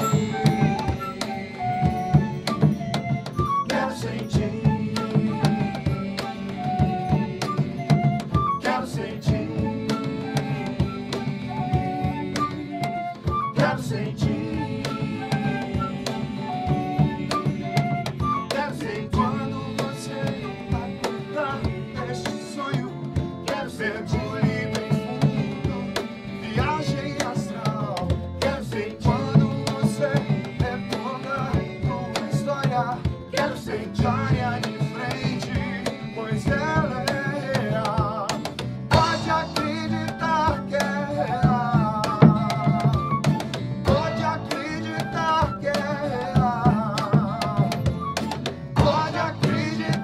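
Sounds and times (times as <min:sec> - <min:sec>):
cajon beat: 0:00.0 - 0:50.0
flute melody: 0:00.0 - 0:50.0
strummed acoustic guitars: 0:00.0 - 0:50.0
person singing: 0:03.6 - 0:50.0
drum struck with sticks: 0:37.8 - 0:39.9.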